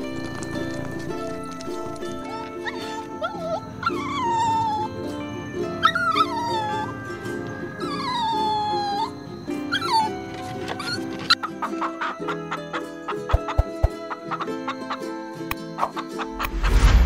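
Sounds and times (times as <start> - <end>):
soft background music: 0.0 - 17.0
puppy whining: 1.4 - 15.0.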